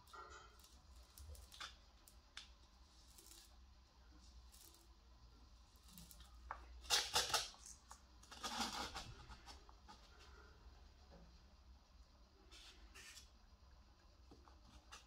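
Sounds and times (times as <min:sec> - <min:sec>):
faint low hum: 0:00.0 - 0:15.0
dry gourd scraping rustles: 0:08.2 - 0:10.4.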